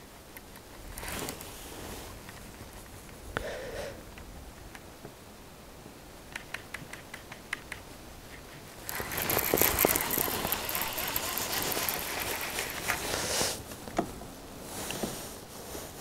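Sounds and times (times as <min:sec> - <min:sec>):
fishing reel gears whirring: 0:08.8 - 0:13.2
fishing reel ticking: 0:08.8 - 0:13.2.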